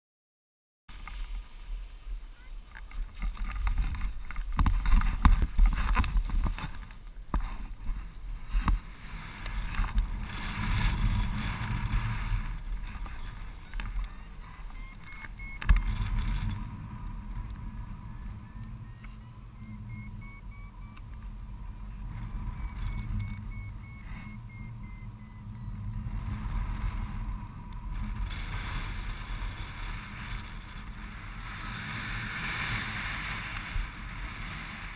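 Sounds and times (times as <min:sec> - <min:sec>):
wind buffeting microphone: 0:02.1 - 0:34.9
variometer beeping: 0:11.2 - 0:28.0.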